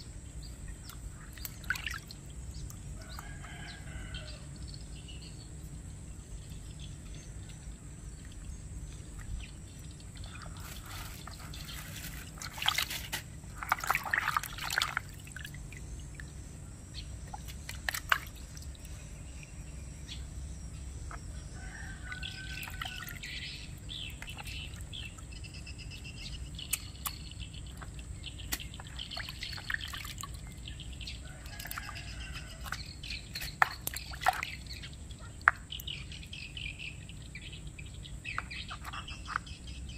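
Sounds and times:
birds chirping: 0.0s - 39.9s
water sloshing in basin: 0.2s - 4.4s, 7.1s - 19.6s, 21.5s - 36.4s
water splashes: 0.5s - 3.6s, 8.2s - 16.4s, 17.2s - 19.0s, 21.8s - 25.4s, 26.6s - 36.1s.

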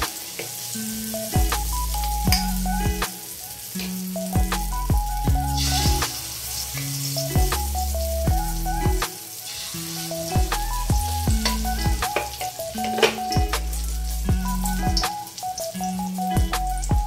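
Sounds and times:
omelette sizzling in hot oil: 0.0s - 16.9s
background music with a beat: 0.0s - 17.0s.

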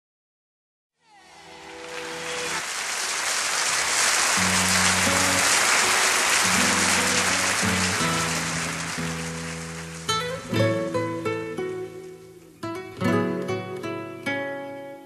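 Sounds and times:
audience applause: 1.2s - 12.0s.

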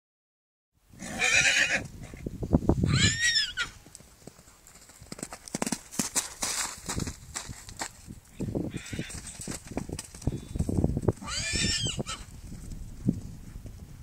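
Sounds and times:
horse whinnying: 1.0s - 1.9s, 2.8s - 3.8s, 8.7s - 9.2s, 11.2s - 12.3s
hoofbeats thudding on turf: 3.9s - 8.1s, 8.8s - 14.0s.

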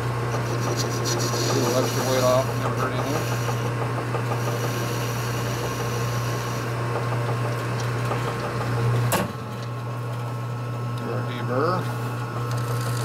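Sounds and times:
metal lathe running: 0.0s - 9.6s.

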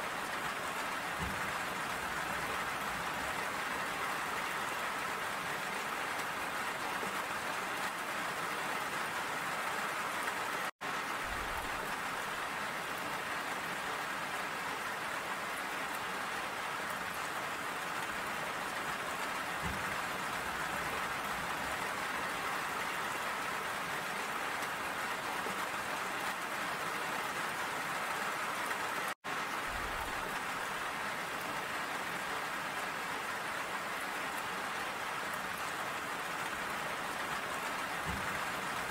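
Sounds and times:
steady rain: 0.0s - 38.9s.

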